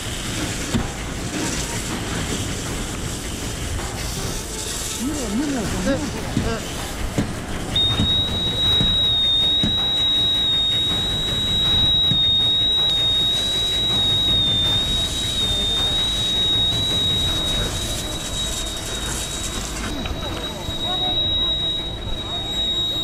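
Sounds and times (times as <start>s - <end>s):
fire hose spraying water: 0.0s - 23.0s
high-pitched warning whistle: 7.7s - 23.0s.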